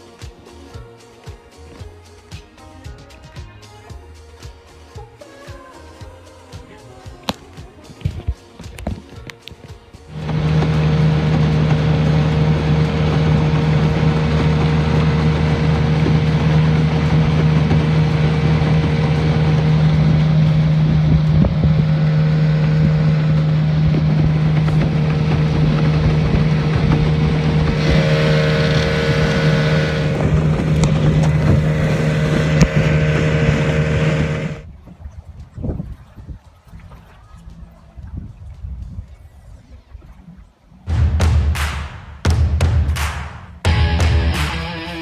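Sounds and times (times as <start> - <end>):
wind on microphone: 7.1 - 40.9
higher pitched sound: 10.1 - 34.6
outboard motor droning: 10.1 - 34.7.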